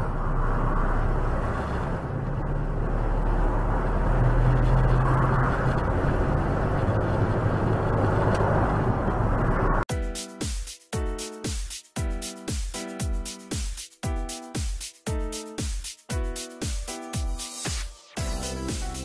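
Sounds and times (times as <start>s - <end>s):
engine hum inside vehicle: 0.0s - 9.9s.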